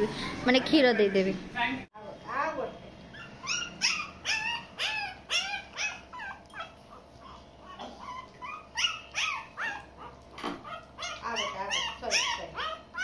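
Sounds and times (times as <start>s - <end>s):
puppies whining: 3.1s - 13.0s.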